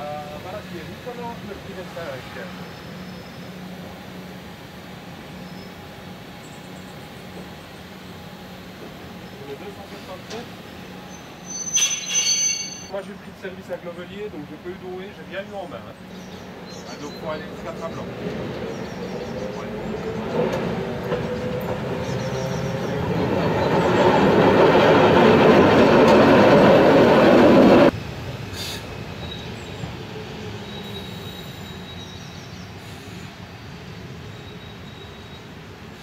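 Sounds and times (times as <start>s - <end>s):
distant train rumble: 0.0s - 36.0s
train wheels squealing and clattering: 10.0s - 13.2s, 29.0s - 33.3s.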